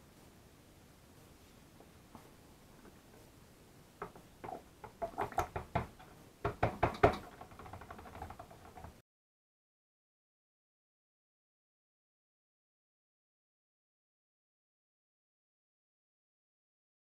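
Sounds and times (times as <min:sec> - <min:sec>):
blender knocking on plastic bowl: 0:05.2 - 0:08.3.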